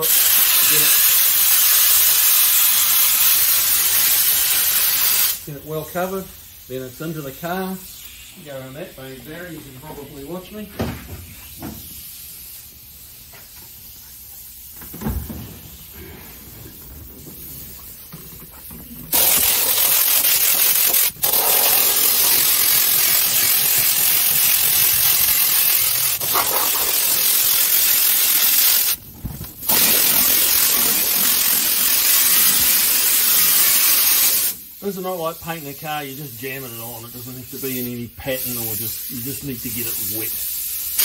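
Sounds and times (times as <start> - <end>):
spray gun hissing: 0.0 - 10.7, 11.3 - 29.0, 29.6 - 41.0
thump: 10.8 - 11.8, 14.8 - 15.8
handling noise: 14.4 - 25.2.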